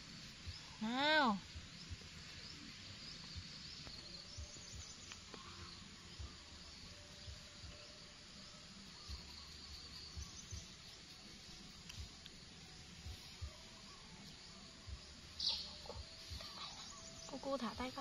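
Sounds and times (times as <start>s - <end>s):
soft low thumps: 0.0s - 5.5s, 9.0s - 10.9s, 14.8s - 18.0s
high insect drone: 0.0s - 18.0s
faint bird calls: 15.3s - 17.9s.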